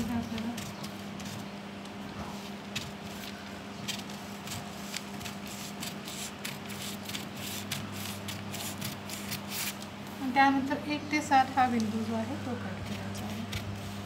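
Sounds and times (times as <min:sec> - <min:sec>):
scissors snipping paper: 0:02.8 - 0:09.8.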